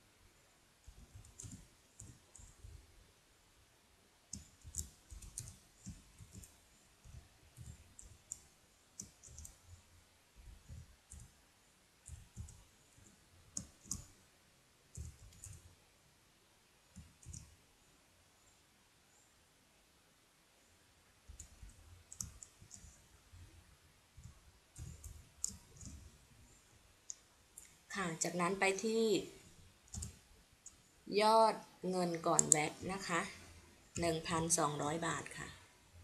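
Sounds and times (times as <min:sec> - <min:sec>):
keyboard keys clicking: 0:00.9 - 0:02.6, 0:04.3 - 0:06.5, 0:09.0 - 0:09.6, 0:14.9 - 0:15.6, 0:24.2 - 0:26.1, 0:29.9 - 0:30.2, 0:32.4 - 0:33.0.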